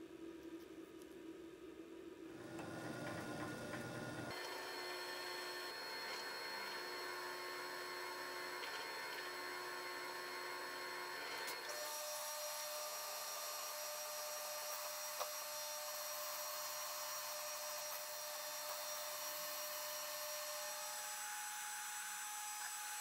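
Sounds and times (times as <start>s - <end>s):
milling machine whine: 2.3s - 23.0s.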